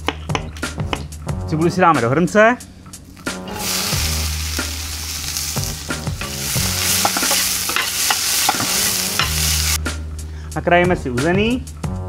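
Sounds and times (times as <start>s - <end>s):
onions sizzling in hot fat: 3.1s - 9.8s
spoon knocking and scraping pot: 6.2s - 9.4s.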